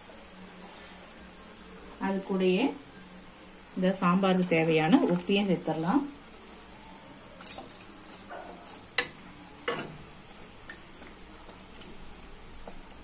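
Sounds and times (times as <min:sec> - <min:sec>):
ladle stirring vegetables in water: 0:04.2 - 0:05.7, 0:07.4 - 0:13.0.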